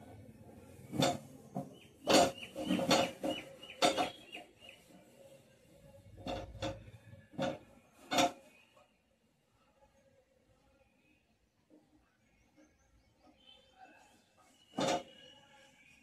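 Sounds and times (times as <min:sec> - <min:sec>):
metal stove clanking on floor: 0:00.9 - 0:01.3, 0:02.0 - 0:04.2, 0:14.8 - 0:15.1
bird chirping: 0:01.4 - 0:05.8.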